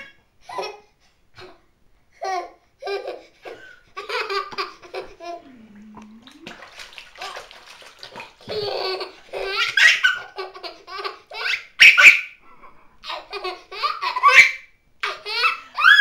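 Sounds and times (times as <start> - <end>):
baby laughing: 2.2 - 6.6, 8.2 - 16.0.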